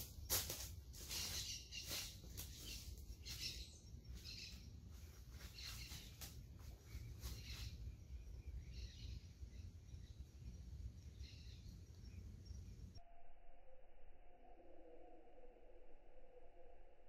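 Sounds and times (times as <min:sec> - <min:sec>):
footsteps crunching dry leaves: 0:00.0 - 0:07.9.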